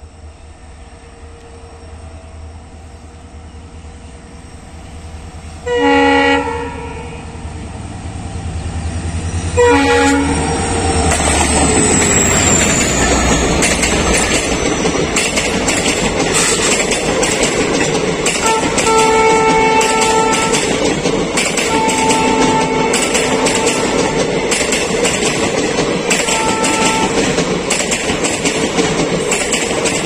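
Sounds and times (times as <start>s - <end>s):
diesel locomotive engine rumbling: 0.0s - 30.0s
passing train rush: 0.0s - 30.0s
train horn blasts: 5.6s - 7.4s, 9.5s - 10.6s, 18.4s - 20.7s, 21.6s - 24.2s, 26.1s - 27.3s
train wheels clattering on rails: 9.2s - 30.0s.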